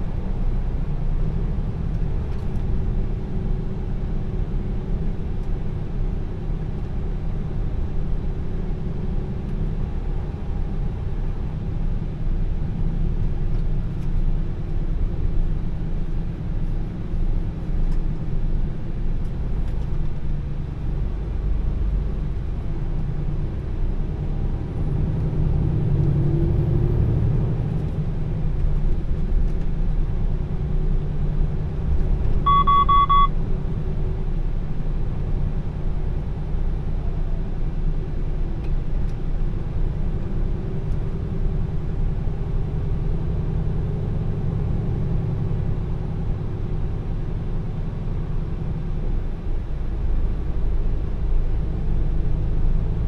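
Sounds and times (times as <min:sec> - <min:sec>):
road rumble: 0:00.0 - 0:53.0
short electronic beep: 0:32.5 - 0:33.3.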